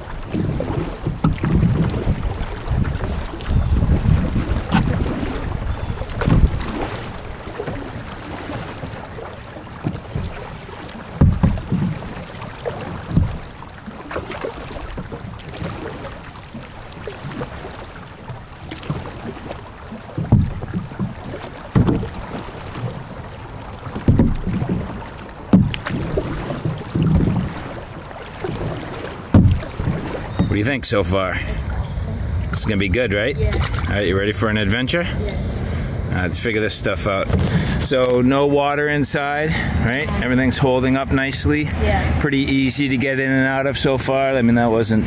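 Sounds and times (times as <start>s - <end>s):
wind on microphone: 0.0s - 12.2s
kayak paddles splashing: 0.0s - 45.0s
plastic hulls swishing through water: 0.0s - 45.0s.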